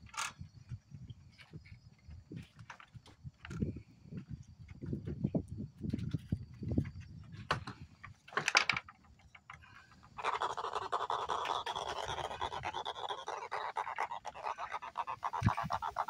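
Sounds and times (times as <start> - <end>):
fish grunting: 10.2 - 16.0.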